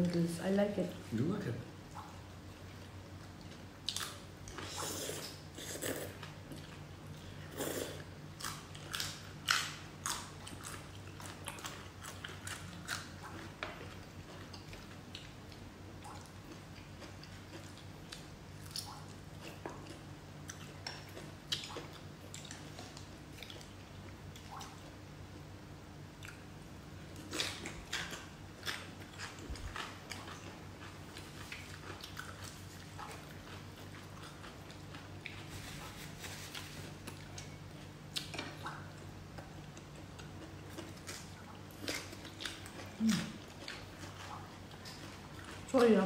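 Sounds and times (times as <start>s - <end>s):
steady low hum: 0.0s - 46.0s
wet chewing and biting: 8.4s - 24.8s, 27.1s - 45.7s.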